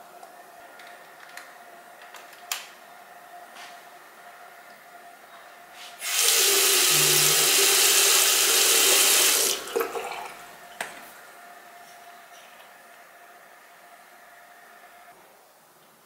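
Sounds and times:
tap water running into basin: 6.0 - 10.5.

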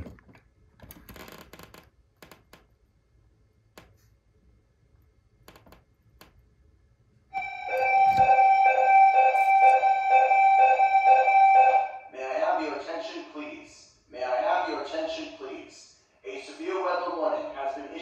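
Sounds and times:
electronic alarm tone: 7.3 - 12.1.

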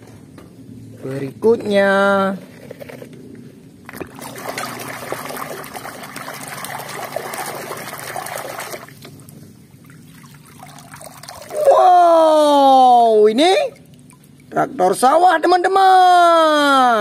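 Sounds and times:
water sloshing in a tub: 3.9 - 11.8, 13.4 - 14.8.

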